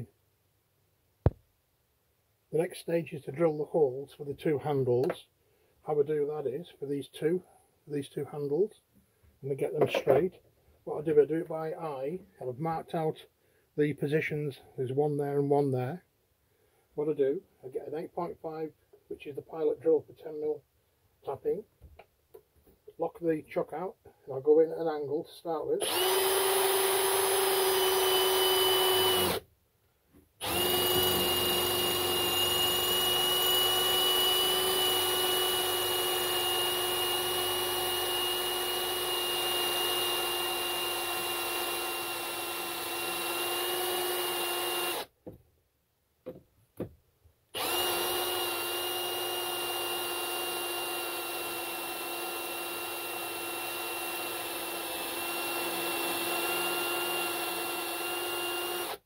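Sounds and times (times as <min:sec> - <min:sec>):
power drill motor whine: 0:25.8 - 0:29.4, 0:30.4 - 0:45.1, 0:47.6 - 0:59.0.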